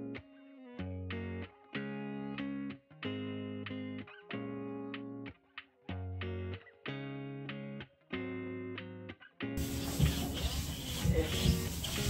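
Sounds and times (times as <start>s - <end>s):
guitar chords: 0.0s - 9.6s.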